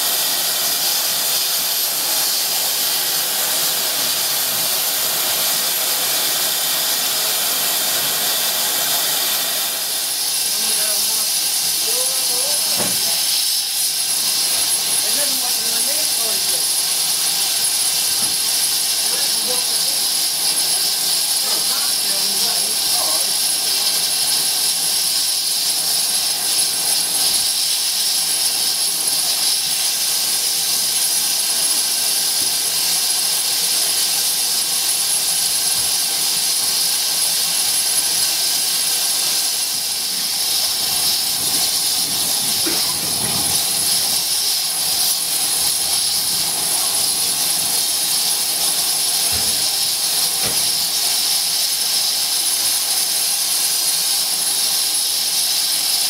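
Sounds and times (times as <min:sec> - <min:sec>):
steam locomotive hissing steam: 0:00.0 - 0:56.0.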